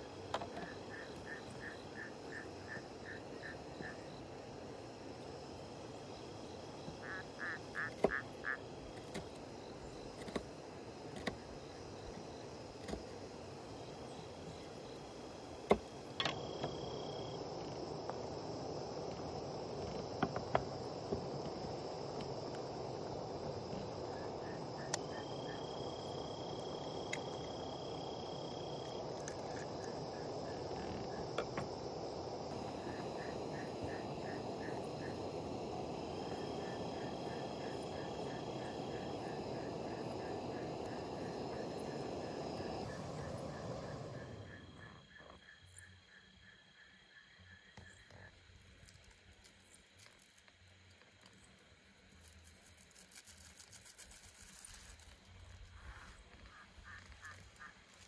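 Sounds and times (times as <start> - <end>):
night creatures chirping trills: 0.0 - 5.1, 5.8 - 10.2, 16.2 - 46.2
steady hiss: 0.0 - 45.2, 47.8 - 58.0.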